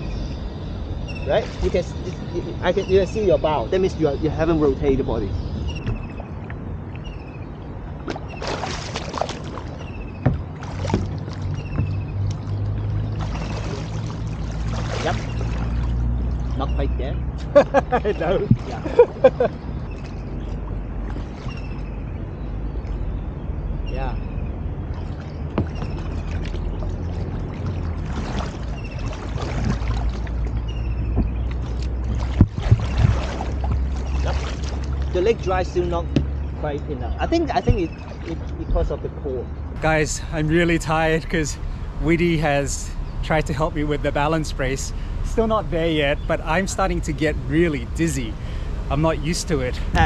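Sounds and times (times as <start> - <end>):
steady low rumble: 0.0 - 8.3, 9.4 - 50.0
water splashing around kayak: 4.5 - 23.0, 24.7 - 36.6, 37.6 - 38.8
knocks against kayak hull: 10.2 - 12.0, 31.0 - 31.5, 32.2 - 33.9
sharp knocks: 10.2 - 12.3, 25.5 - 26.0.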